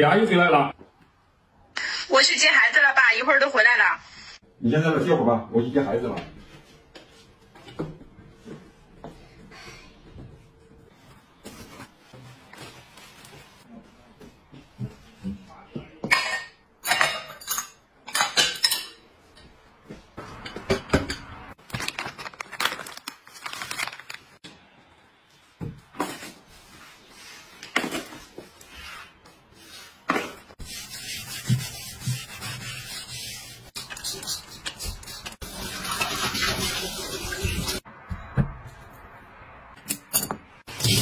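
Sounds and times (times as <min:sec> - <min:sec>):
ceramic dishes clinking: 0:16.0 - 0:19.1.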